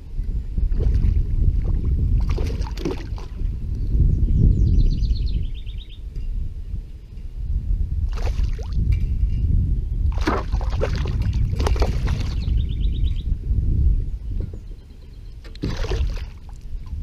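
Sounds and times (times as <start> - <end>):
steady low rumble: 0.0 - 17.0
fish splashing at water surface: 10.1 - 12.4, 15.6 - 16.6.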